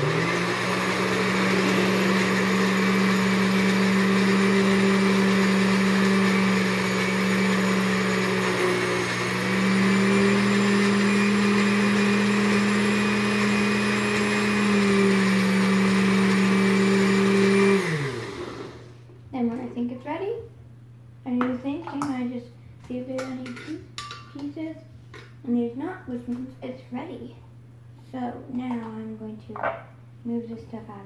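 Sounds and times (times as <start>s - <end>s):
electric blender running: 0.0s - 19.0s.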